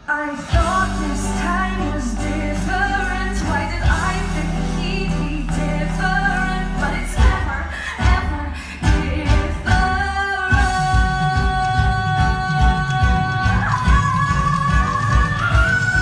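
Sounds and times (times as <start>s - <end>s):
band music with heavy bass: 0.0s - 16.0s
woman singing pop vocal riff: 0.0s - 16.0s.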